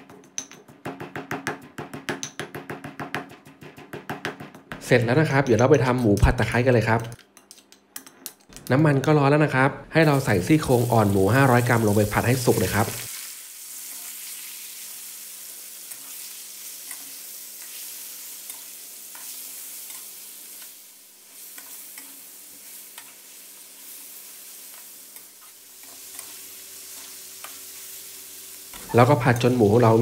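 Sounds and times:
pork sizzling in hot oil: 0:10.0 - 0:30.0.

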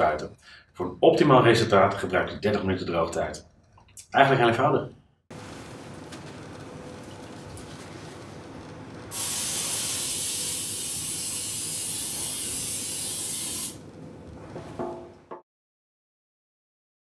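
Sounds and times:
aerosol spray hissing: 0:09.1 - 0:13.8.

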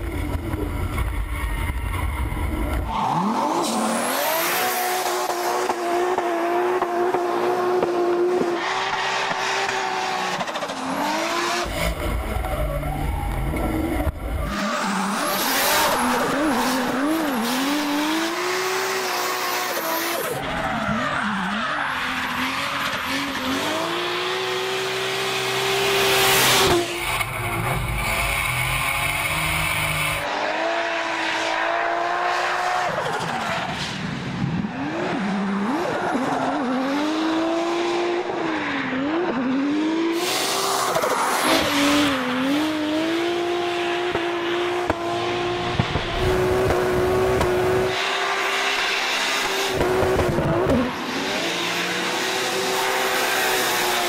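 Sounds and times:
car engine revving hard: 0:03.0 - 0:12.1, 0:22.0 - 0:32.9, 0:39.0 - 0:54.0
tyres squealing and skidding: 0:08.5 - 0:30.3, 0:31.2 - 0:34.1, 0:34.8 - 0:37.1, 0:40.2 - 0:43.0, 0:50.8 - 0:54.0.

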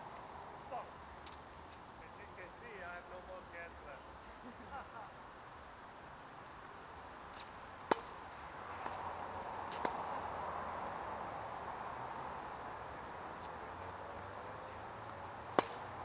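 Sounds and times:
background hiss: 0:00.0 - 0:16.0
tennis balls struck by rackets: 0:07.4 - 0:08.2, 0:09.6 - 0:10.2, 0:15.5 - 0:16.0
distant ball hits and bounces: 0:07.9 - 0:08.2, 0:15.5 - 0:16.0.

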